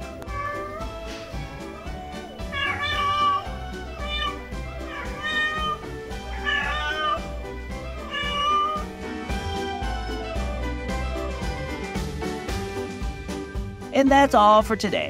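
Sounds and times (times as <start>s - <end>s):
cat meowing loudly: 0.2s - 1.0s, 1.7s - 9.0s.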